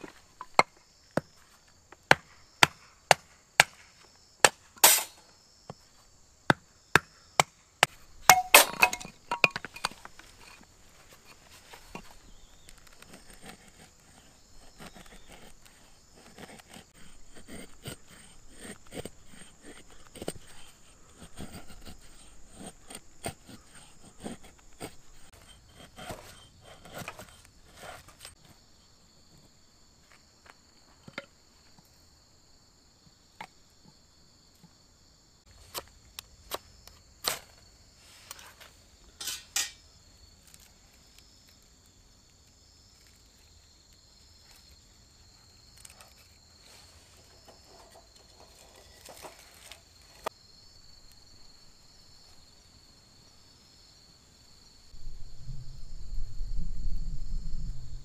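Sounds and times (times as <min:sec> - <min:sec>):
insects chorus: 0:00.0 - 0:58.0.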